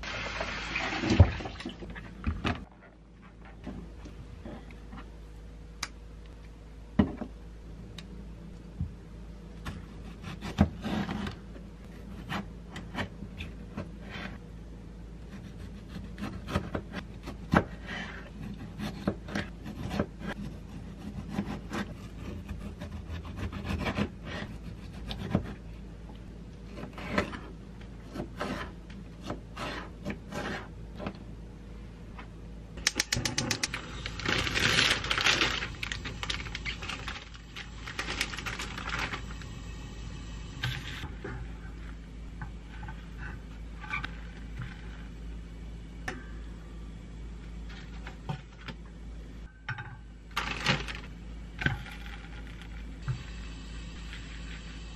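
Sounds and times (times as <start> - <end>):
steady low hum: 0.8 - 54.9
plastic bag crinkling: 33.7 - 39.4, 50.4 - 51.1.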